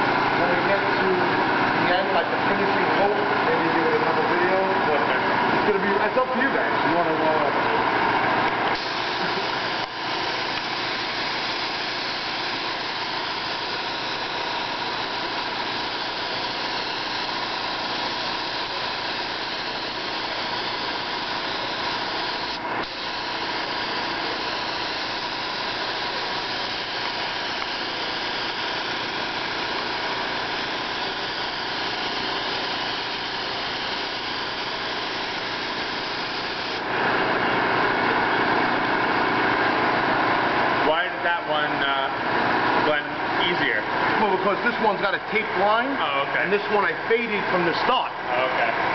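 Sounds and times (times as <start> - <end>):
spray gun hissing: 8.8 - 36.9.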